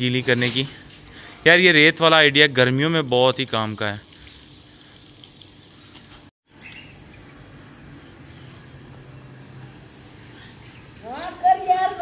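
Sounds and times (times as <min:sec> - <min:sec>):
hose water spraying onto sand: 0:00.0 - 0:12.0.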